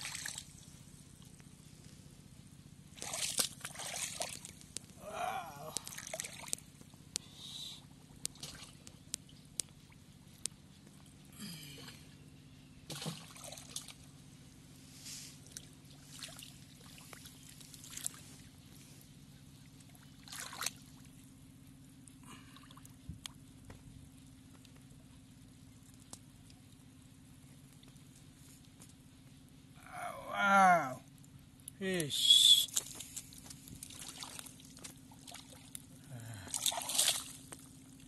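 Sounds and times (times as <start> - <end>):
hands squelching in mud and water: 0.0 - 0.5, 3.0 - 6.8, 8.2 - 9.8, 12.9 - 14.0, 15.3 - 18.3, 19.8 - 20.9, 32.7 - 37.8
faint low hum: 0.0 - 38.0.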